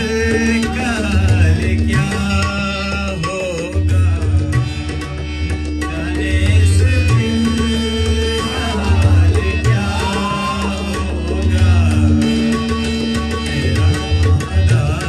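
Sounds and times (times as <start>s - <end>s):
harmonium drone: 0.0s - 15.0s
tabla beat: 0.0s - 15.0s
people singing: 5.8s - 15.0s.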